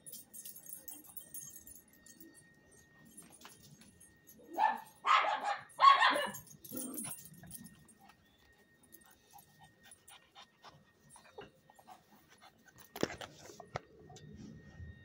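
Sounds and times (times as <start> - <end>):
dog barking: 4.6 - 6.4.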